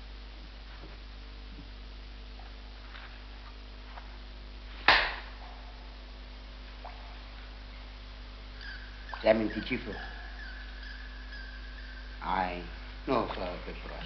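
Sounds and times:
film soundtrack hiss and hum: 0:00.0 - 0:14.0
sharp crack: 0:04.8 - 0:05.4.

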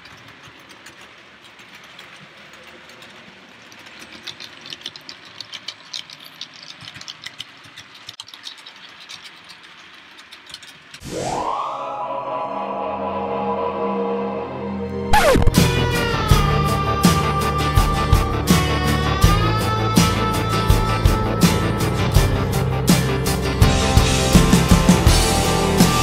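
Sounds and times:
model trains running: 0:00.0 - 0:11.0
wheels clicking over rails: 0:00.0 - 0:11.0.

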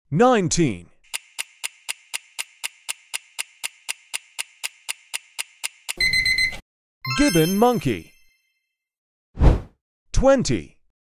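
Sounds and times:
countdown timer ticking: 0:01.1 - 0:08.1
ringing tone: 0:06.0 - 0:08.6.

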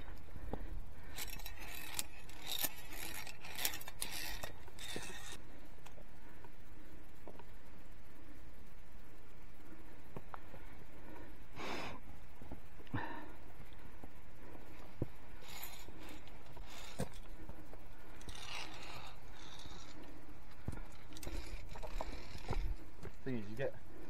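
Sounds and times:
scraping and rustling of gear: 0:00.0 - 0:06.0, 0:14.5 - 0:23.8
steady low rumble: 0:00.0 - 0:24.0.

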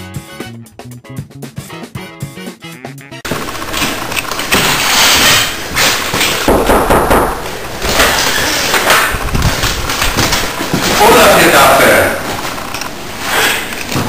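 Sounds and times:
knocks and thuds: 0:03.3 - 0:11.1
door clattering open: 0:03.3 - 0:11.3.

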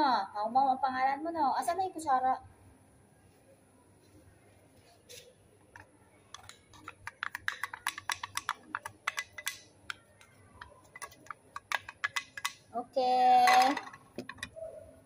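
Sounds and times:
spoon tapping metal can: 0:05.8 - 0:12.7, 0:13.4 - 0:14.5.

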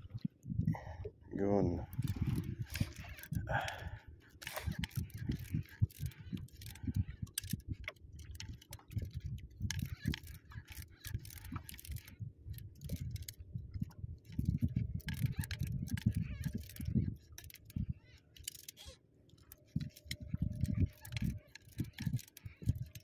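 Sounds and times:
fishing tackle clicking and rattling: 0:01.8 - 0:23.0.

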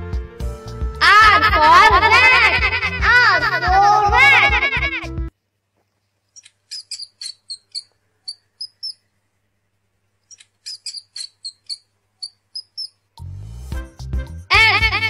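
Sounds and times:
rat squeaking: 0:06.4 - 0:09.1, 0:10.3 - 0:13.0.

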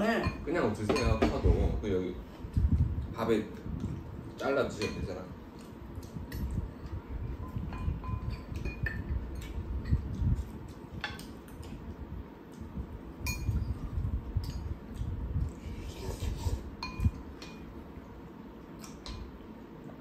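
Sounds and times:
spoon clinking on ceramic bowls: 0:04.8 - 0:05.2, 0:07.7 - 0:10.0, 0:13.3 - 0:13.7, 0:16.8 - 0:17.7.

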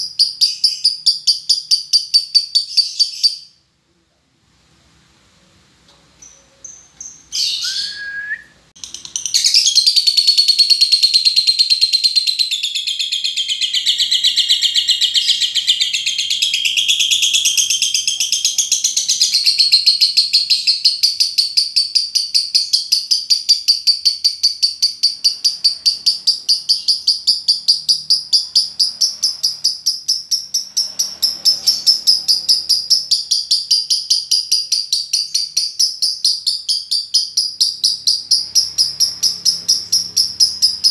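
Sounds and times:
lovebird chattering song: 0:00.0 - 0:03.6, 0:06.2 - 0:08.1, 0:08.8 - 0:40.9
short bird calls: 0:07.2 - 0:08.5.

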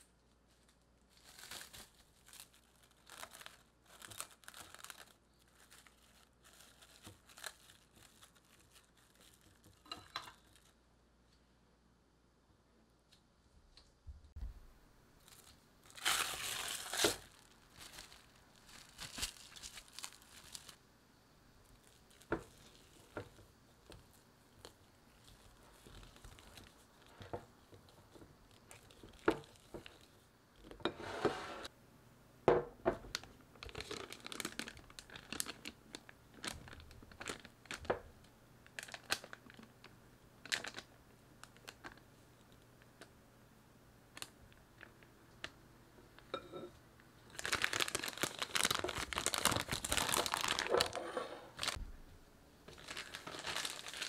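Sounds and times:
plastic piping bag crinkling: 0:00.0 - 0:10.8, 0:15.2 - 0:20.8, 0:21.6 - 0:30.7, 0:33.1 - 0:42.8, 0:47.3 - 0:51.9, 0:52.7 - 0:54.0
cling film crinkling: 0:00.3 - 0:10.8, 0:15.2 - 0:20.8, 0:21.6 - 0:30.3, 0:33.1 - 0:38.0, 0:38.6 - 0:42.6, 0:47.3 - 0:51.8, 0:52.7 - 0:54.0.

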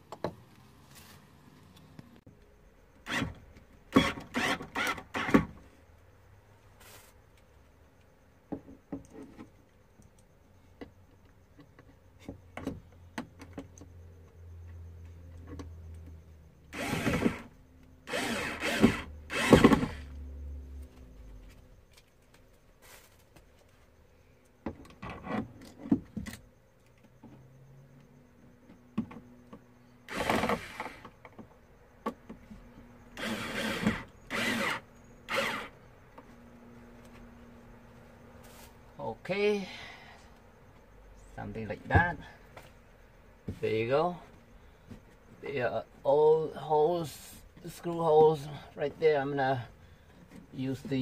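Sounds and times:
cordless drill drilling into wood: 0:03.9 - 0:05.5, 0:16.7 - 0:20.1, 0:30.1 - 0:31.1, 0:33.2 - 0:35.8.

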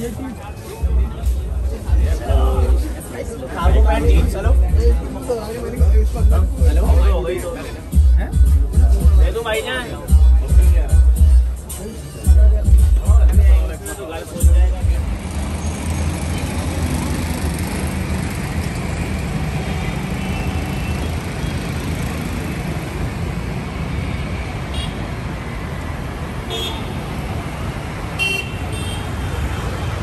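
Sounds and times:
city road traffic rumble: 0:00.0 - 0:30.0
vehicle horn toots: 0:28.2 - 0:29.1.

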